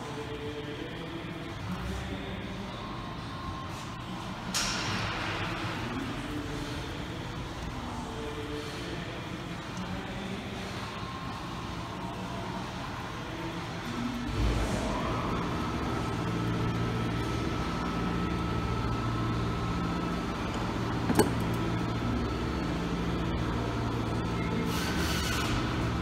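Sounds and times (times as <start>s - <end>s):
repair shop background hum: 0.0s - 26.0s.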